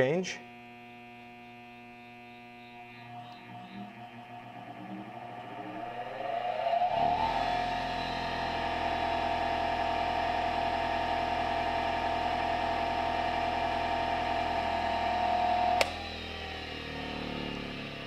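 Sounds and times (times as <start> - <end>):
bench grinder motor whining: 0.6 - 18.0
motor spinning down: 1.8 - 18.0
switch click: 15.8 - 16.0.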